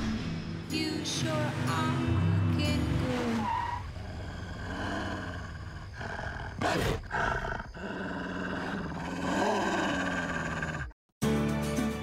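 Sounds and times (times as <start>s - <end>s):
dog growling: 4.0s - 11.0s.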